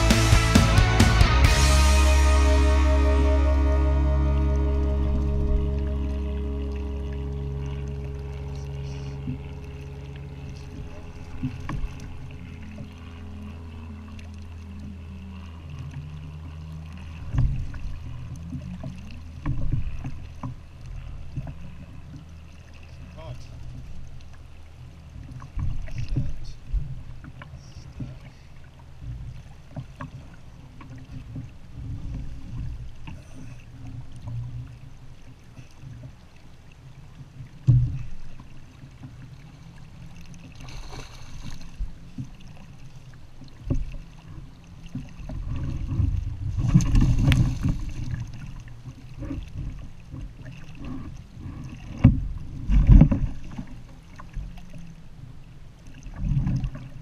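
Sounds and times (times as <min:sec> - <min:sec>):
water against kayak hull: 0:00.0 - 0:57.0
wind rumble on microphone: 0:43.7 - 0:53.8.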